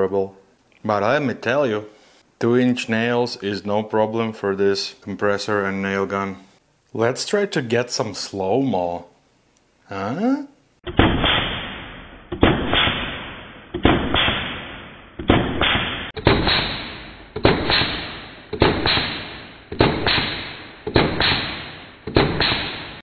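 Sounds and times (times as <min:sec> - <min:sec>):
nail gun deep thuds: 0:10.9 - 0:23.0.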